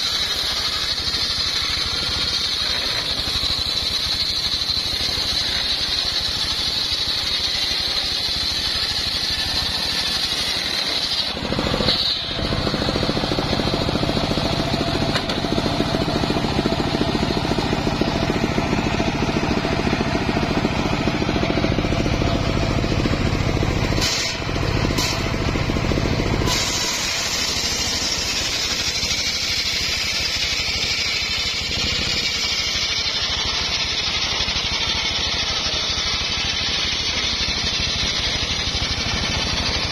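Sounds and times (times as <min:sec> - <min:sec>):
high saw blade whine: 0:00.0 - 0:39.9
sawmill cutting log: 0:00.0 - 0:39.9.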